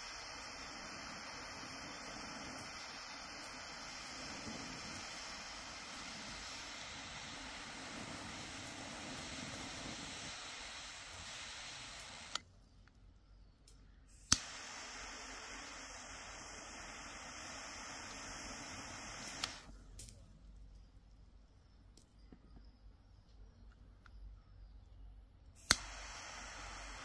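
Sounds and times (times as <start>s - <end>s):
lighter click: 0.0s - 12.4s, 13.7s - 20.2s, 25.6s - 27.0s
torch lighter hissing: 0.0s - 12.4s, 14.1s - 20.1s, 25.6s - 27.0s.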